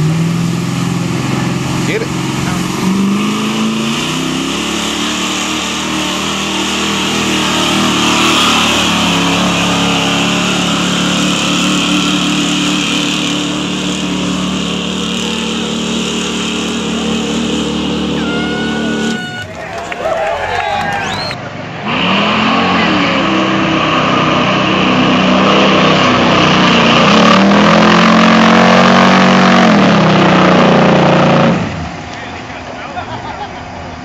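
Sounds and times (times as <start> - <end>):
truck engine at high revs: 0.0 - 34.0.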